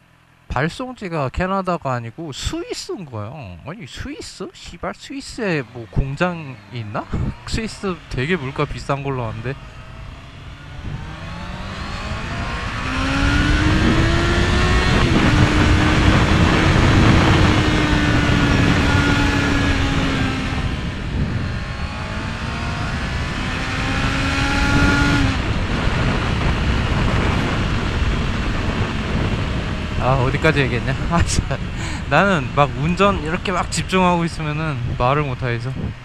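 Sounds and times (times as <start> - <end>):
motorcycle engine accelerating: 1.8 - 36.0
heavy wind rush: 4.8 - 36.0.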